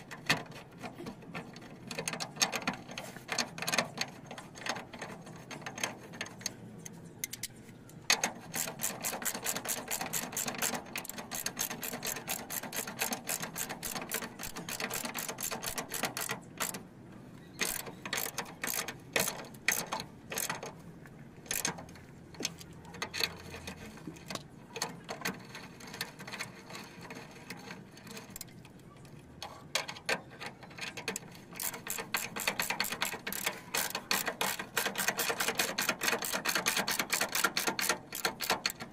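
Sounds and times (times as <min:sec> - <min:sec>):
ratchet wrench clicking: 0:08.5 - 0:16.8, 0:17.6 - 0:20.6, 0:31.6 - 0:38.9.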